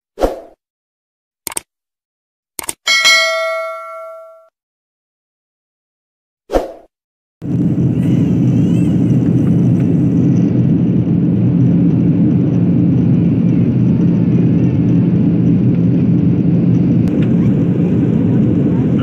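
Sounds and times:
airplane cabin engine rumble: 0:07.4 - 0:19.0.

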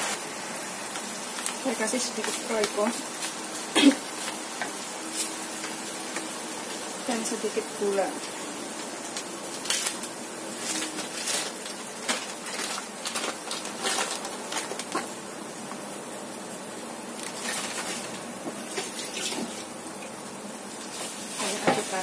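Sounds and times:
crackles and pops: 0:00.0 - 0:07.0, 0:08.2 - 0:21.8
sauce sizzling in a wok: 0:00.0 - 0:22.0.

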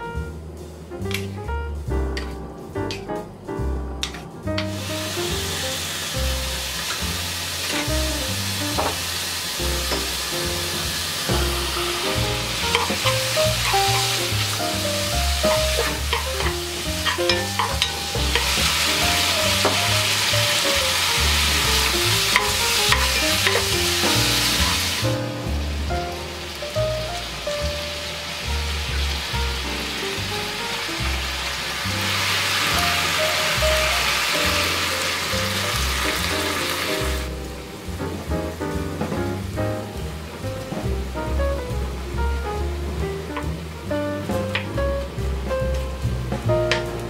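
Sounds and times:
meat sizzling in a pot: 0:04.7 - 0:38.0.

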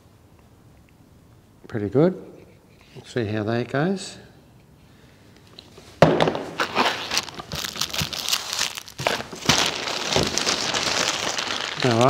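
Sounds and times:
plastic packaging crinkling: 0:06.5 - 0:12.0.

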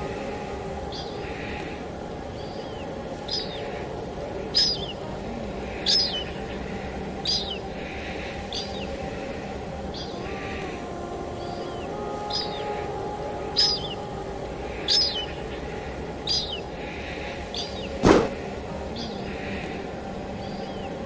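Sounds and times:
falling rain: 0:00.0 - 0:21.0
bird calling: 0:05.7 - 0:19.8.

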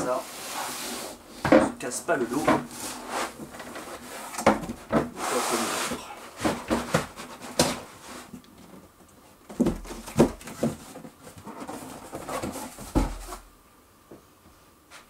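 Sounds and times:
cardboard rubbing against foam: 0:00.0 - 0:01.3, 0:02.3 - 0:04.3, 0:05.1 - 0:08.3.

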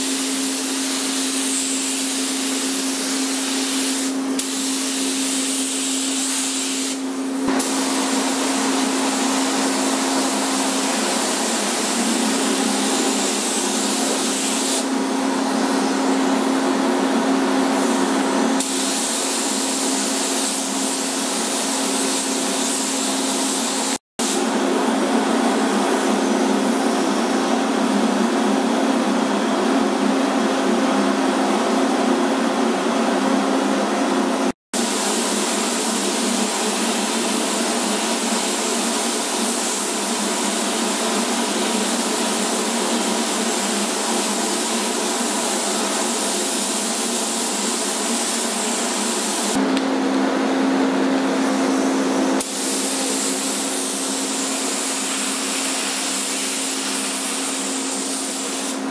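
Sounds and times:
spray gun hissing: 0:00.0 - 0:14.9, 0:18.6 - 0:24.4, 0:41.6 - 0:49.6, 0:52.4 - 0:58.8
paint booth airflow: 0:00.0 - 0:50.1, 0:51.0 - 0:58.9.

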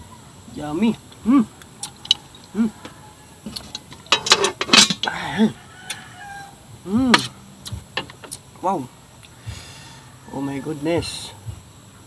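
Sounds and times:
crunching clicks: 0:01.1 - 0:02.6.

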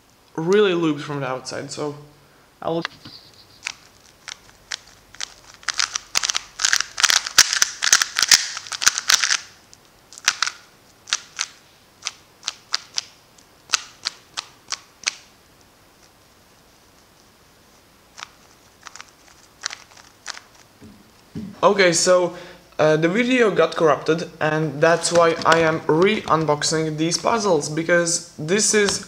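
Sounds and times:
puzzle cube plastic layers clacking: 0:03.4 - 0:15.3, 0:18.1 - 0:20.8, 0:25.0 - 0:27.4.

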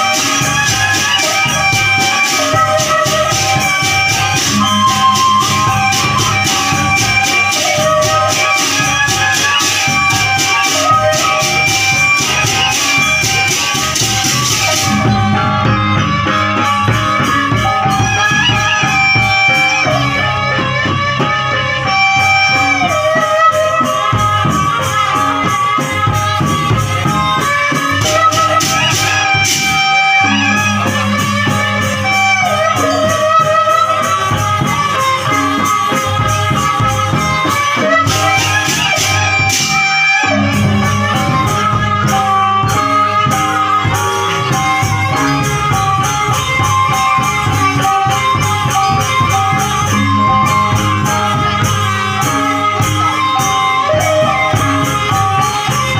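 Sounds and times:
bamboo flute melody: 0:00.0 - 0:55.9
large drums: 0:00.0 - 0:55.9.

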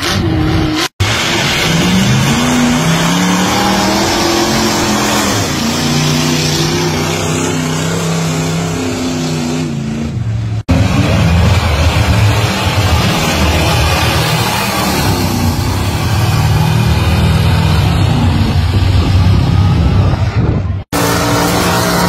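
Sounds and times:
second engine: 0:00.0 - 0:22.0
truck churning through mud: 0:00.0 - 0:22.0
truck engine revving: 0:00.0 - 0:22.0.

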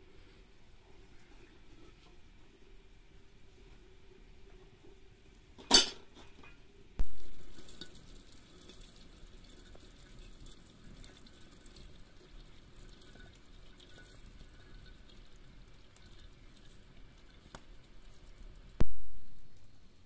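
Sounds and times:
crockery clatter: 0:05.6 - 0:06.5.

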